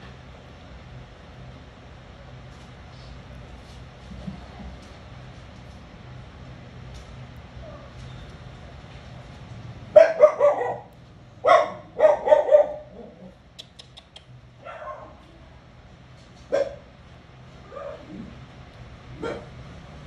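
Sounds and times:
dog barking: 9.9s - 13.3s, 14.6s - 15.2s, 16.5s - 16.9s, 19.2s - 19.6s.

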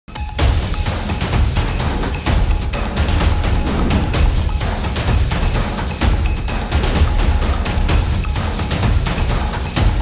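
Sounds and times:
dramatic theme music: 0.2s - 10.0s
loud hit: 3.2s - 4.6s.

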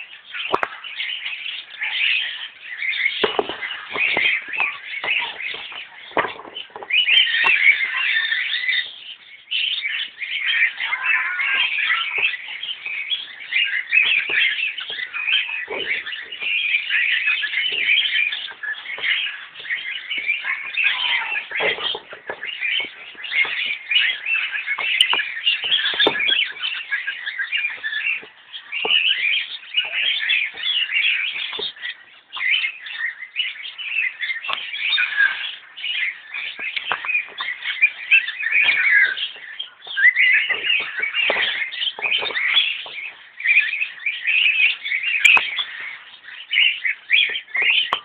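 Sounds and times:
flock of birds chirping: 0.0s - 48.0s.

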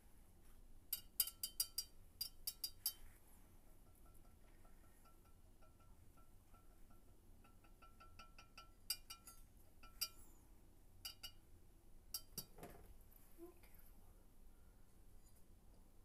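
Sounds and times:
paint strainer clinking against vase: 0.9s - 3.2s, 3.8s - 10.4s, 11.0s - 11.4s, 12.2s - 12.5s.

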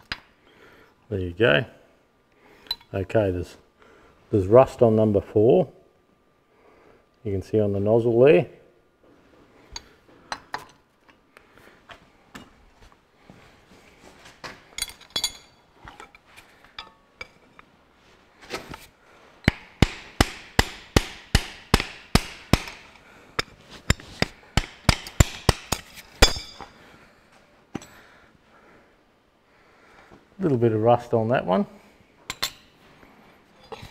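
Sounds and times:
metal clinks: 14.7s - 16.2s, 26.2s - 26.8s.

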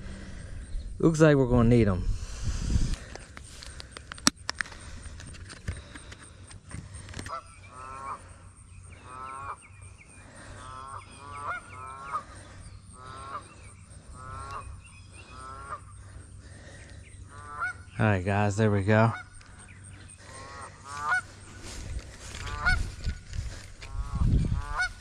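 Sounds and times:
geese honking: 6.9s - 25.0s.

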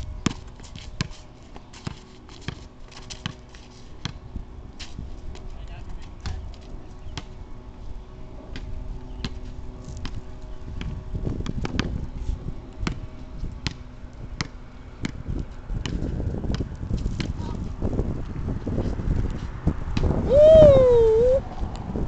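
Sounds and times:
wind rumble on microphone: 0.0s - 1.1s, 4.1s - 22.0s
basketball bouncing on asphalt: 0.2s - 4.3s, 8.5s - 9.4s, 10.0s - 12.0s, 12.8s - 13.8s, 14.4s - 17.5s.

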